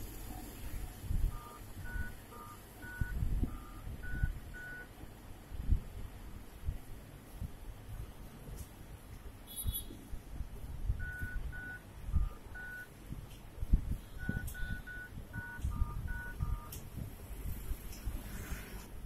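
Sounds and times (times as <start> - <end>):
phone keypad tones: 1.3 - 4.9, 11.0 - 12.9, 14.2 - 16.8.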